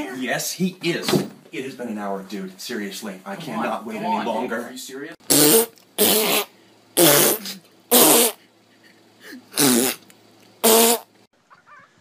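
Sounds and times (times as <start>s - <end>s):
fart sounds: 5.3s - 8.4s, 9.5s - 10.0s, 10.6s - 11.1s.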